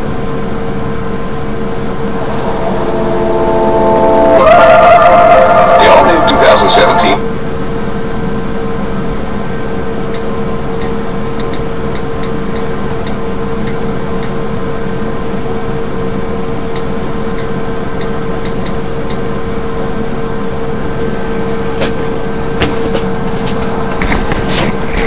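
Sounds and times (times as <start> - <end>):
hum and hiss: 1.6 - 11.4
mid-pitched tone: 1.9 - 7.3.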